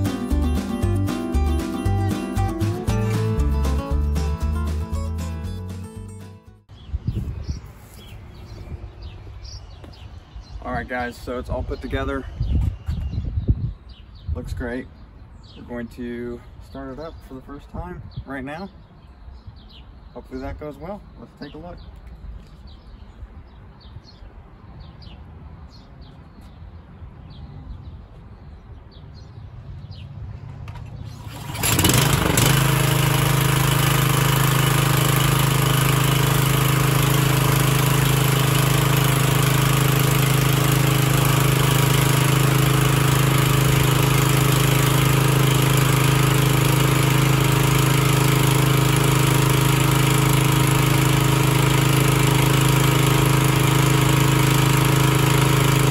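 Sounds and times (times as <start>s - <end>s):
lawn mower engine starting and running: 0.0s - 6.8s, 30.6s - 55.9s.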